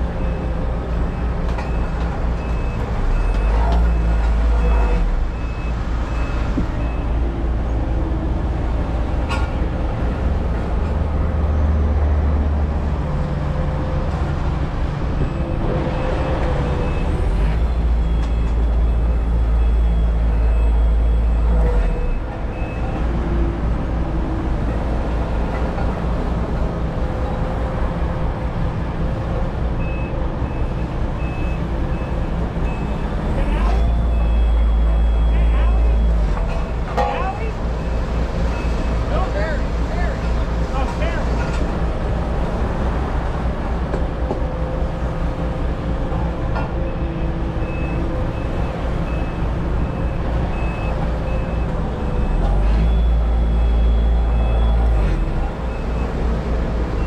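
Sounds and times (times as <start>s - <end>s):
diesel engines running: 0.0s - 57.0s
reversing alarm beeping: 15.2s - 23.0s, 29.8s - 36.9s, 46.8s - 56.2s.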